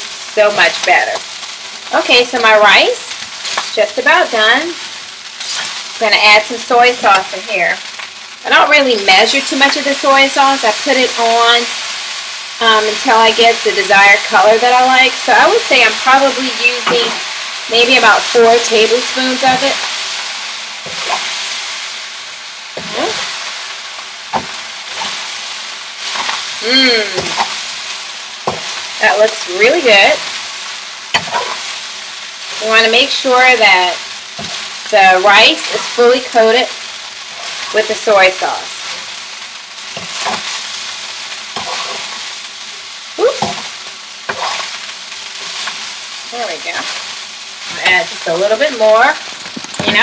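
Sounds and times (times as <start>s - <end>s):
rice sizzling in a pan: 0.0s - 50.0s
metal spatula scraping a pan: 5.4s - 5.8s, 41.5s - 42.2s
spatula scraping and knocking pan: 28.4s - 28.8s, 41.5s - 42.2s.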